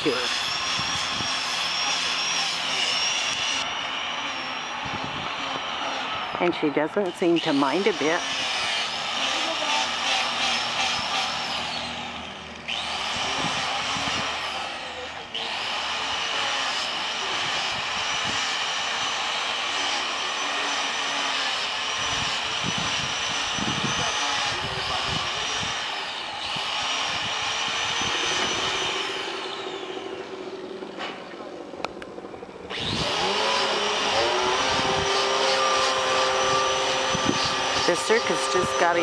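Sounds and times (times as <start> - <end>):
electric power tool whining: 0.0 - 39.0.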